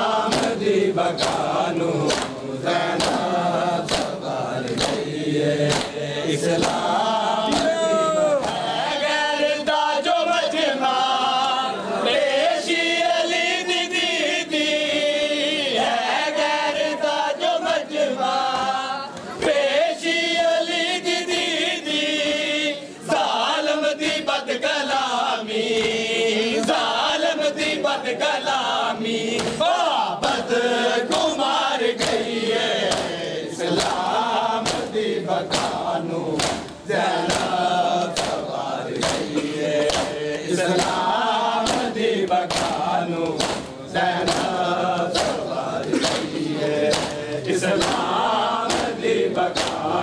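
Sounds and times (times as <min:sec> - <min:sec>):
men chanting a lament: 0:00.0 - 0:50.0
hands slapping chests: 0:00.2 - 0:08.8, 0:29.3 - 0:29.6, 0:32.0 - 0:50.0.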